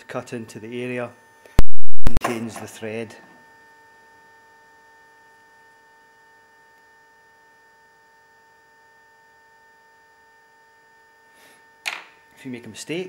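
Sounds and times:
high electrical hum: 1.6s - 2.2s.

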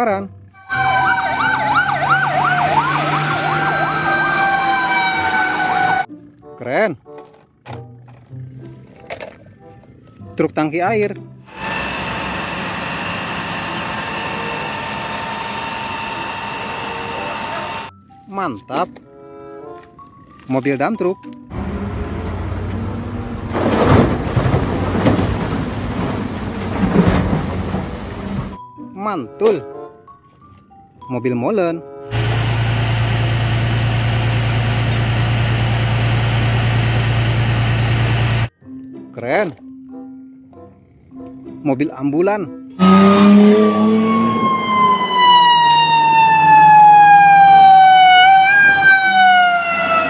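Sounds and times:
diesel engines humming: 0.4s - 6.1s, 11.4s - 17.9s, 21.5s - 28.6s, 32.0s - 38.5s
ambulance siren wailing: 0.6s - 6.1s, 11.6s - 17.9s, 42.8s - 50.0s
material pouring into truck bed: 23.4s - 28.6s.

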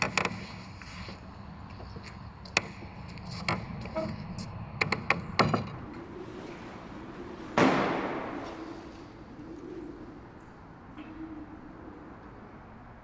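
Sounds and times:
sharp clicks and knocks: 0.0s - 0.4s, 4.8s - 5.8s
loud echoing bang: 7.4s - 9.0s.

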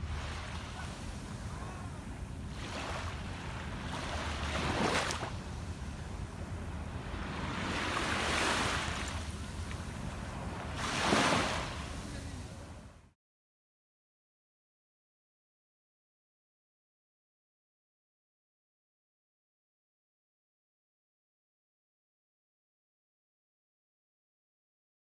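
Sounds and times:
small waves washing on beach: 0.0s - 12.9s.

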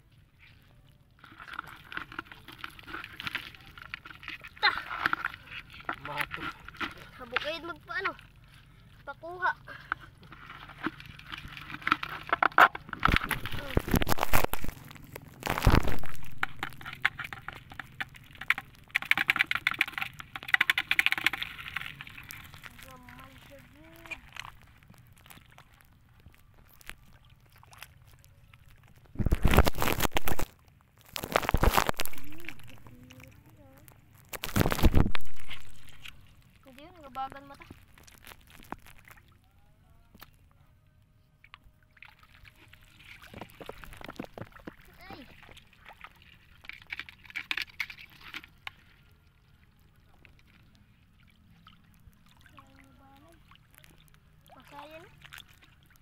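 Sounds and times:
wading in shallow water: 0.0s - 56.0s
crab legs clicking on plastic: 11.2s - 23.2s.

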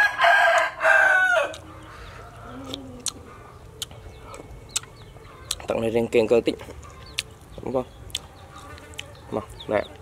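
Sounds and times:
rooster crowing: 0.0s - 2.8s.

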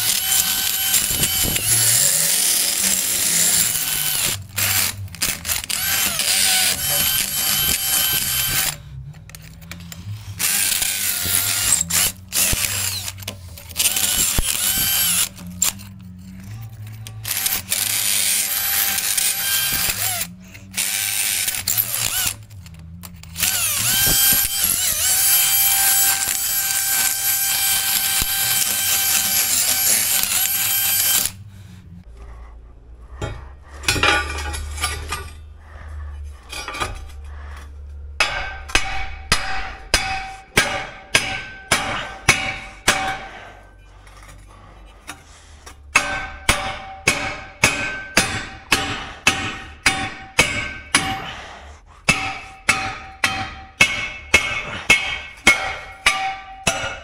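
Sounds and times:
drill boring into concrete: 0.0s - 8.8s, 10.4s - 15.8s, 17.2s - 22.5s, 23.2s - 31.4s.

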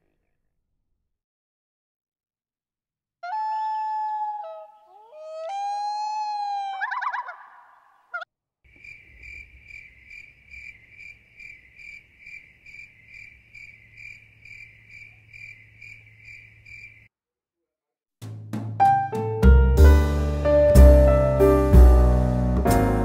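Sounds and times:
cricket chirping: 8.7s - 17.1s.

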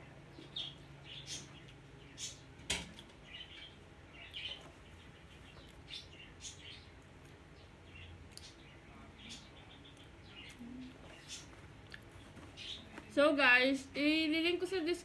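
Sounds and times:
chewing mouth sounds: 11.8s - 12.1s.

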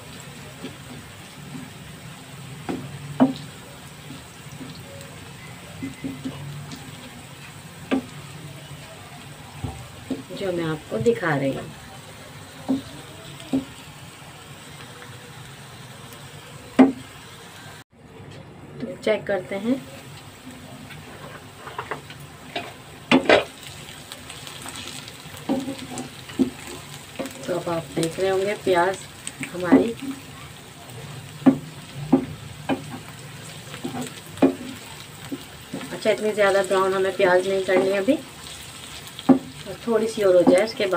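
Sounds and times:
onions sizzling in oil: 0.0s - 17.9s, 18.9s - 40.9s
wooden spatula knocking on pan: 2.6s - 4.2s, 7.9s - 8.1s, 12.6s - 13.8s, 29.6s - 30.2s, 31.4s - 33.1s, 33.8s - 36.0s, 37.6s - 38.0s, 39.2s - 39.6s, 40.3s - 40.8s
wooden spatula scraping pan: 20.9s - 23.5s.

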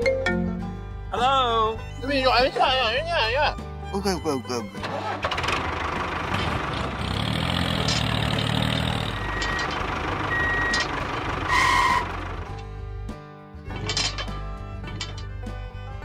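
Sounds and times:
truck engine running: 4.2s - 15.7s
reversing beeper: 9.0s - 9.7s, 10.3s - 10.9s.

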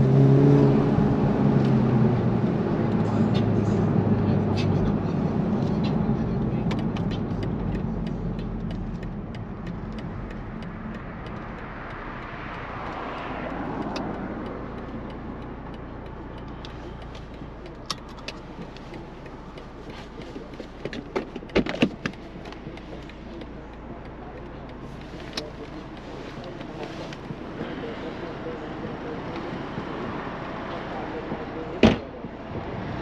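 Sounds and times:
car engine and road noise: 0.0s - 33.0s
sharp clicks and knocks: 5.8s - 27.8s.

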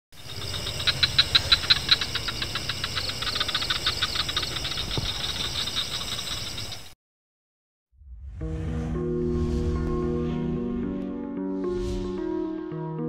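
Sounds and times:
rapid mechanical clicking: 0.2s - 6.9s
low hum: 8.0s - 12.5s.

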